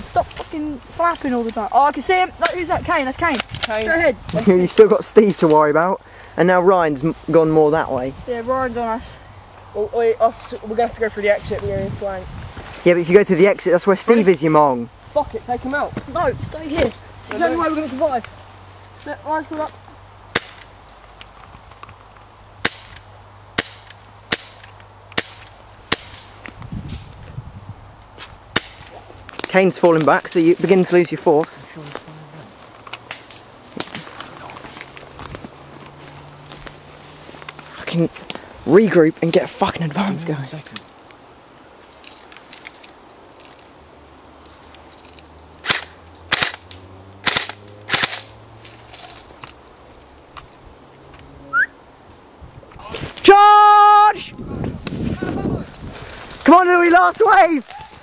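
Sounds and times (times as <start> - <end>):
airsoft gun shots: 45.6 - 46.6, 47.2 - 48.3.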